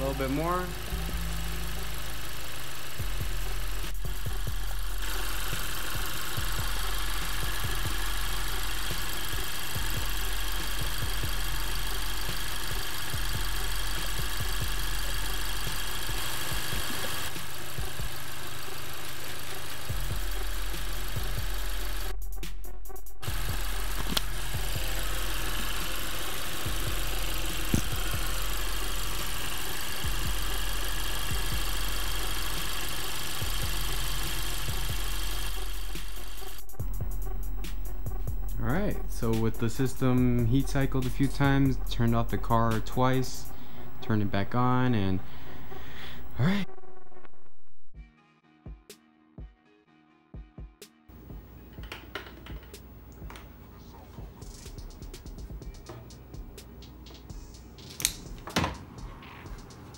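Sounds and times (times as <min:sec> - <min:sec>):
car engine idling: 0:00.0 - 0:22.4, 0:23.2 - 0:46.5.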